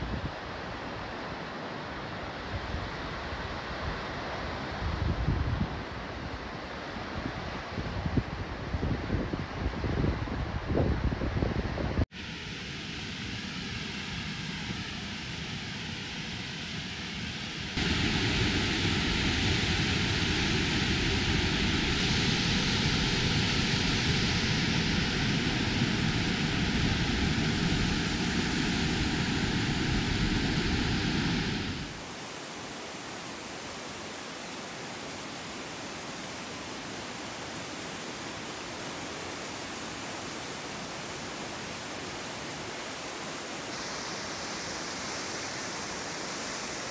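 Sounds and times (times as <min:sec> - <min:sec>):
waterfall rushing: 0:17.7 - 0:46.9.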